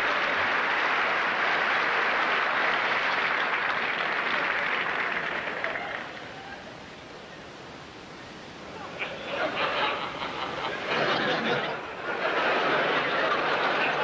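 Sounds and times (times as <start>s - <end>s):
audience applauding: 0.0s - 6.7s, 10.0s - 14.0s.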